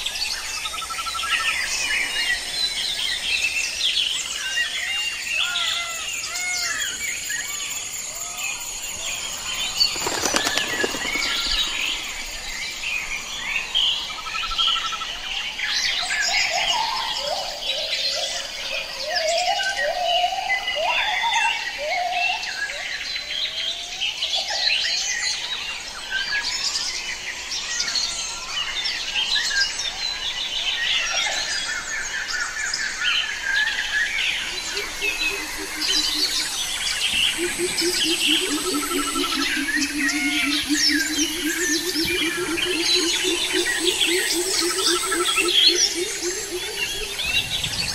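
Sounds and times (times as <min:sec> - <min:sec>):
birds chirping and calling: 0:00.0 - 0:18.4, 0:30.0 - 0:47.9.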